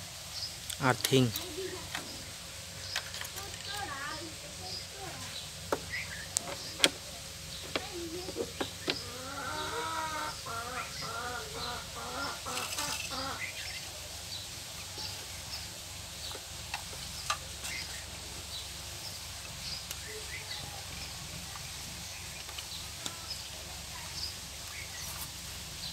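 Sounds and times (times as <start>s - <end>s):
small birds chirping: 0.0s - 25.9s
wavering bird call: 8.7s - 13.9s.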